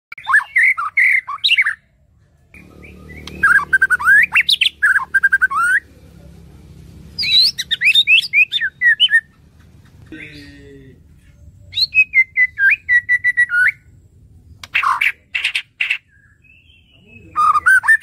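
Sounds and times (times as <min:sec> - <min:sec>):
bird singing whistled notes: 0:00.1 - 0:05.8, 0:07.2 - 0:09.3, 0:11.4 - 0:15.0, 0:16.0 - 0:18.0.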